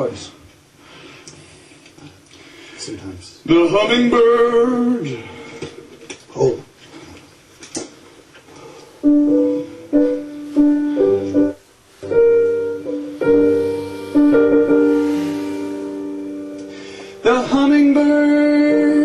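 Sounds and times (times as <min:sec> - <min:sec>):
piano chords: 0:09.0 - 0:19.0.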